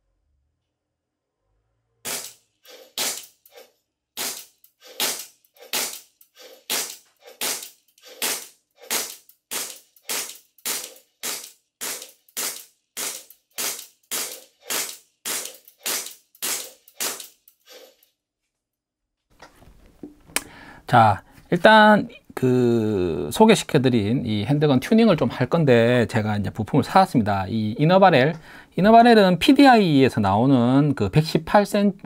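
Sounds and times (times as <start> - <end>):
airsoft pistol shots: 2.1 - 3.4, 4.2 - 6.1, 6.7 - 17.3.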